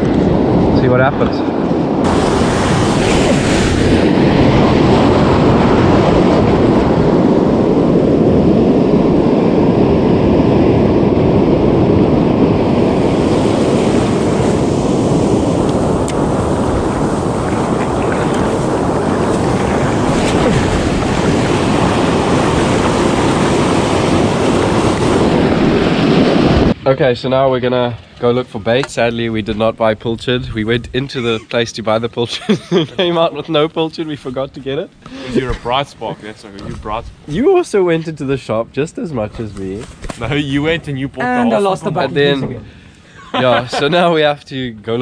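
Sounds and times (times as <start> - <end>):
ocean surf breaking: 0.0 - 30.0, 39.9 - 44.4
wind buffeting microphone: 0.0 - 42.9.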